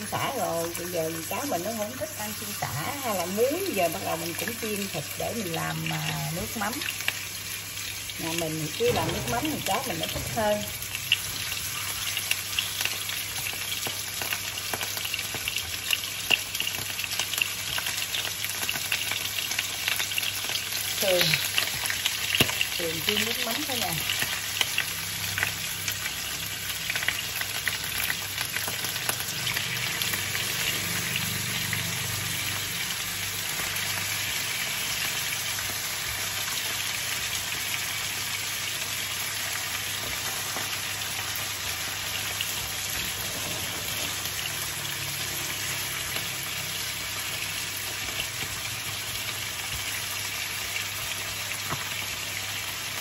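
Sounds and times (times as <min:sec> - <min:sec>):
ribs sizzling in oil: 0:00.0 - 0:53.0.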